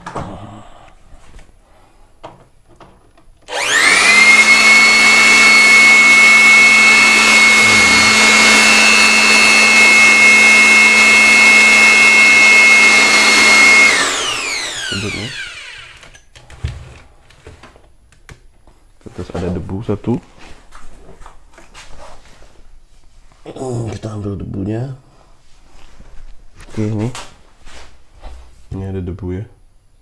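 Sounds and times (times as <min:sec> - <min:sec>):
electric blower whining: 0:03.4 - 0:16.3.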